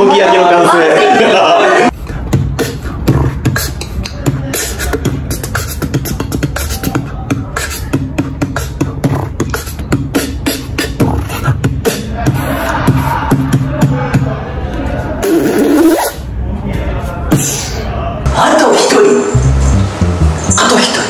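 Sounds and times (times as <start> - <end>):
man beatboxing: 1.9 - 14.4, 15.1 - 16.3, 17.3 - 17.9.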